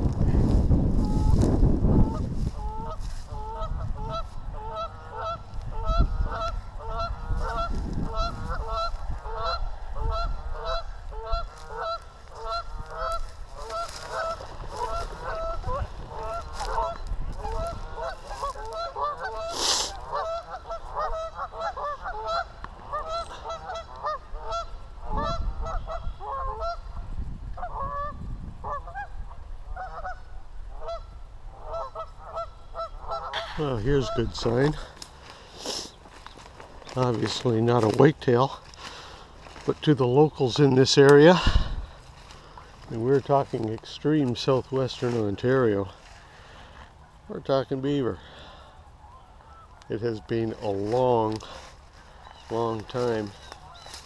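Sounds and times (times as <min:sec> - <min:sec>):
wind buffeting microphone: 0:00.0 - 0:31.6, 0:38.9 - 0:43.8
geese honking: 0:01.0 - 0:54.0.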